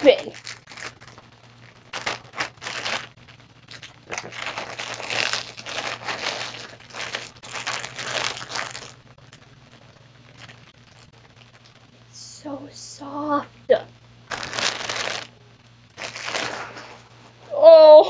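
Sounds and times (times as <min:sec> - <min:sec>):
plastic bag crinkling: 0:00.0 - 0:11.9, 0:14.3 - 0:17.5.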